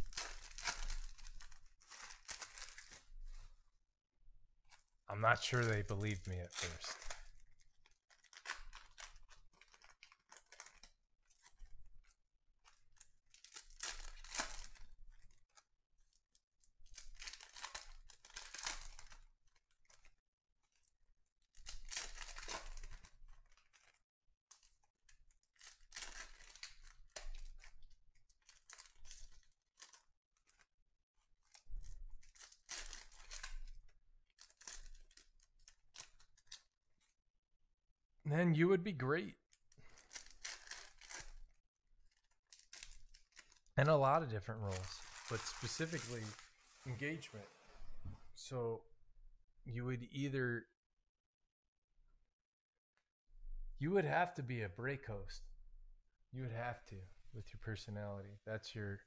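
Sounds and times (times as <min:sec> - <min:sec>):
foil wrappers tearing and crinkling: 0:00.0 - 0:03.4, 0:05.5 - 0:11.7, 0:12.7 - 0:15.6, 0:16.8 - 0:20.1, 0:21.5 - 0:24.7, 0:25.5 - 0:30.7, 0:31.4 - 0:33.8, 0:34.4 - 0:36.6, 0:39.8 - 0:41.5, 0:42.1 - 0:43.7, 0:44.6 - 0:47.0.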